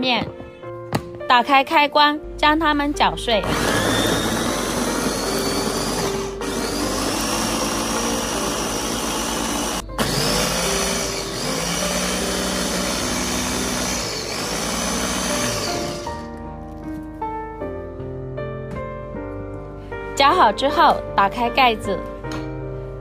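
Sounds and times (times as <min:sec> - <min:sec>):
electric food chopper running: 0:03.4 - 0:16.3.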